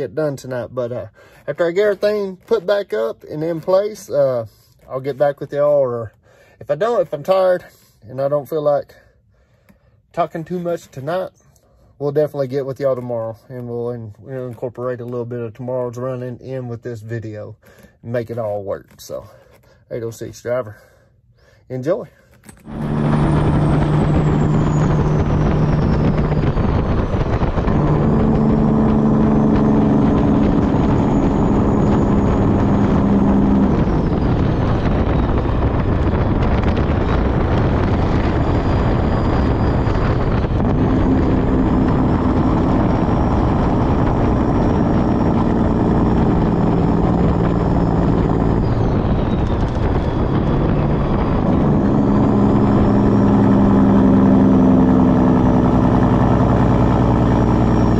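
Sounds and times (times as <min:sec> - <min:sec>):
diesel engine and road noise: 0:00.0 - 0:57.9
faint high whine: 0:21.8 - 0:57.9.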